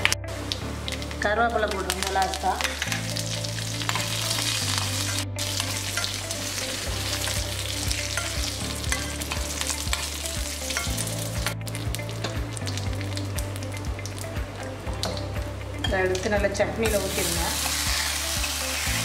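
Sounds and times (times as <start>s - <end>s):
spices sizzling in hot oil: 0.4s - 19.0s
metal spoon stirring in pan: 3.8s - 11.1s.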